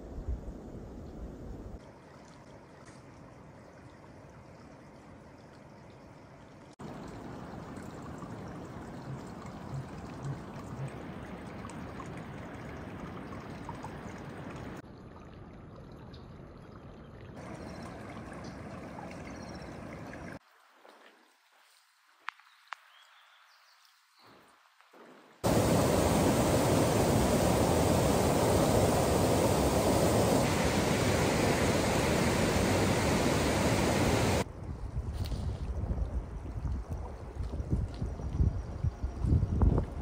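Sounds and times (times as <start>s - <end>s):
stream water rushing: 25.4s - 34.5s.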